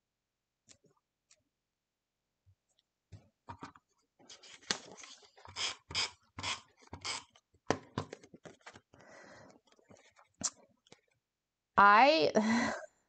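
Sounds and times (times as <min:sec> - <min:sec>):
paper rustling and scraping: 0:04.2 - 0:07.2, 0:08.2 - 0:09.0.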